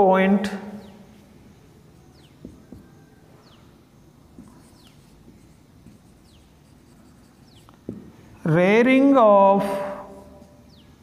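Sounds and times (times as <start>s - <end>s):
marker writing on whiteboard: 1.8s - 3.6s, 4.2s - 8.2s.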